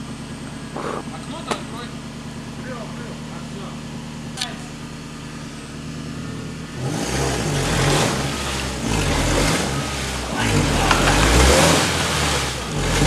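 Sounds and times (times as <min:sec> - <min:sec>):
suv engine revving: 0:00.0 - 0:13.0
water churning around wheels: 0:09.0 - 0:13.0.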